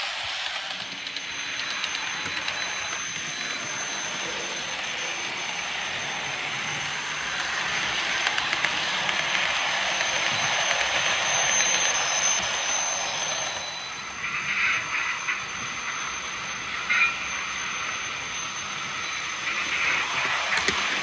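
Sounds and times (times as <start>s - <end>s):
model train wheels rattling: 0.0s - 13.9s
high-pitched motor whine: 0.0s - 21.0s.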